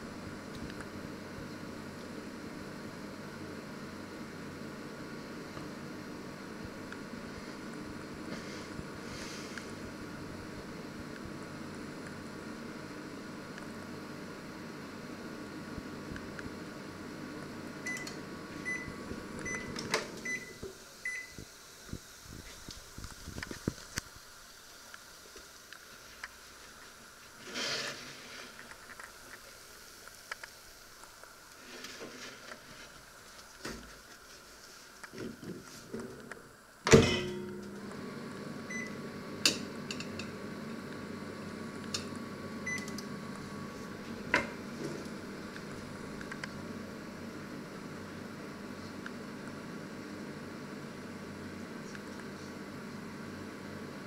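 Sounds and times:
microwave fan hum: 0.0s - 34.1s, 34.7s - 54.0s
microwave beeping: 17.8s - 21.4s, 36.9s - 40.5s, 41.9s - 43.1s.

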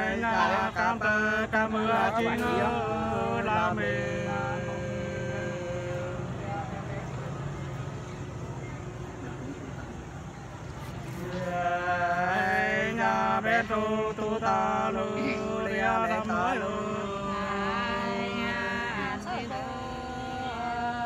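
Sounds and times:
two men singing unaccompanied: 0.0s - 7.8s, 11.0s - 21.0s.

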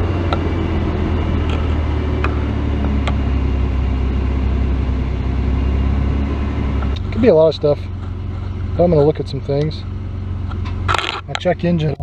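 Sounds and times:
engine idling rough: 0.0s - 12.0s.

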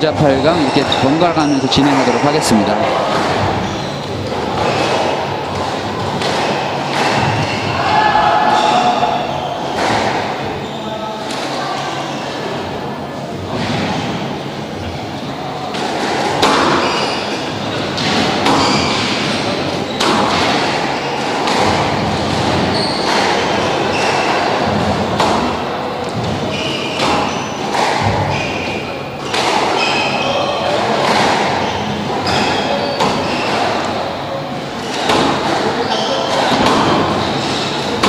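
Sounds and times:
shoes squeaking on floor: 0.0s - 12.5s, 15.8s - 38.0s
squash ball hits echoing: 0.1s - 10.6s, 13.3s - 38.0s.

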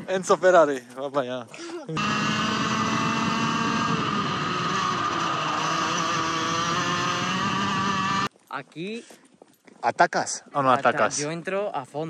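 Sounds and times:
kart engine running: 2.0s - 8.3s.

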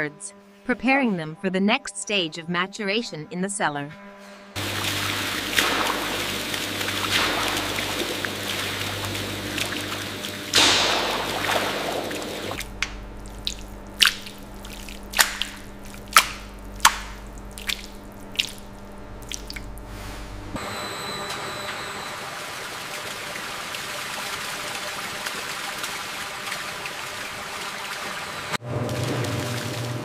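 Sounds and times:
water pouring from a spout: 4.6s - 19.9s, 22.2s - 30.0s
whey dripping and splashing: 4.6s - 20.0s, 22.1s - 30.0s.

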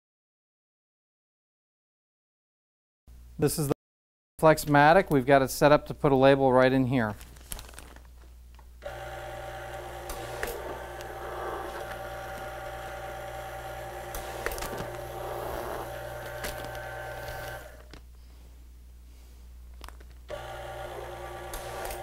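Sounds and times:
plastic bag clicks and crinkles: 7.1s - 8.6s
label applicator motor humming: 8.8s - 17.9s, 20.3s - 22.0s.

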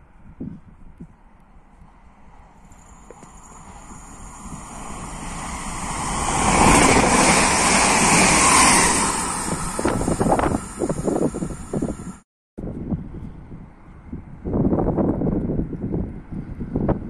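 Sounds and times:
train passing at speed: 1.6s - 12.2s.

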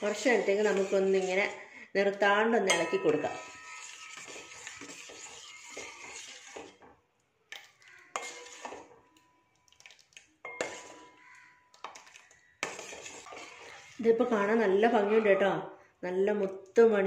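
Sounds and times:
ladle scraping and clinking in pot: 0.0s - 1.6s, 2.6s - 14.4s.

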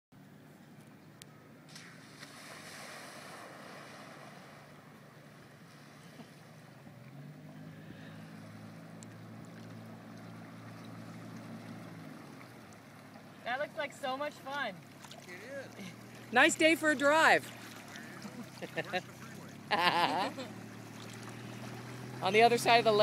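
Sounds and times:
splashing water: 1.7s - 23.0s
car engine running: 4.8s - 23.0s.

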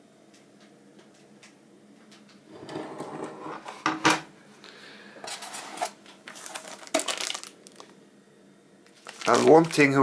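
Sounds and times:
cardboard and foam rustling: 5.4s - 7.8s, 9.0s - 10.0s.

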